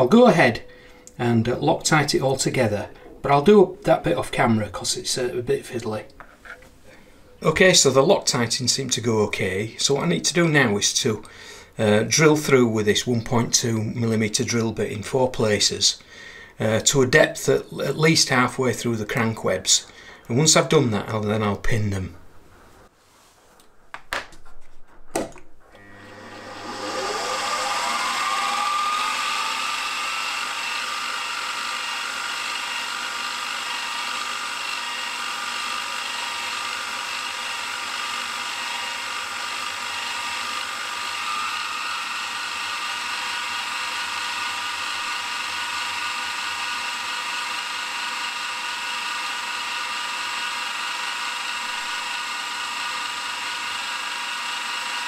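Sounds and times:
spindle whine while drilling: 25.7 - 55.0.

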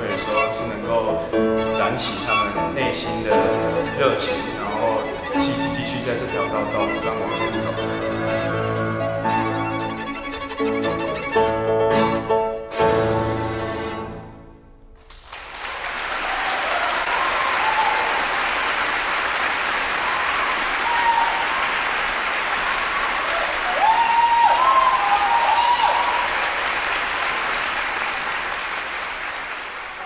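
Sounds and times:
audience applauding: 3.2 - 8.8, 15.0 - 30.0
short cheers: 16.1 - 18.6, 19.8 - 26.6.

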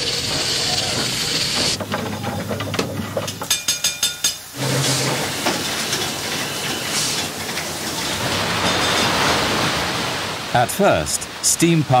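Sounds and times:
steam engine hissing and clattering: 0.0 - 12.0
ringing metallic clanks: 0.4 - 9.3.

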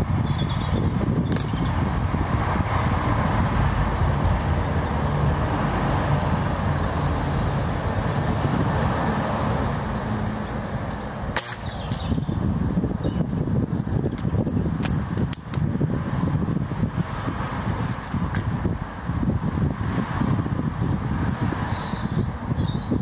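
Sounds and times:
low outdoor rumble: 0.0 - 21.4.

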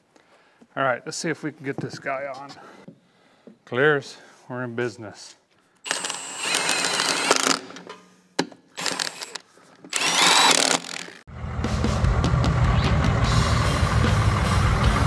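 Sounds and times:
impact wrench bursts: 5.8 - 7.8, 8.8 - 11.3
diesel engine rumbling: 11.3 - 15.0.

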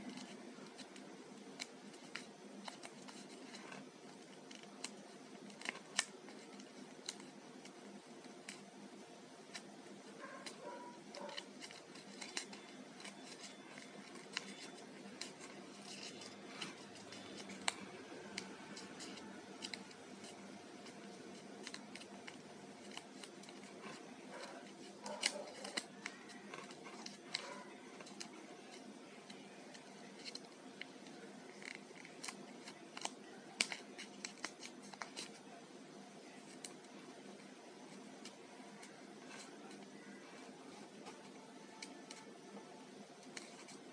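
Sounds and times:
faint steady hum: 0.0 - 43.9
paper crinkling: 9.4 - 35.5, 43.2 - 43.9.

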